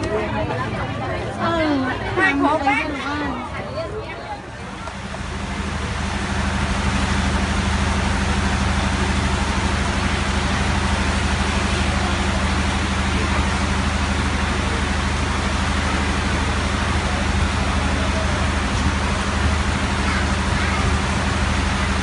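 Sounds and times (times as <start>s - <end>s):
heavy rain on metal roof: 4.8s - 22.0s.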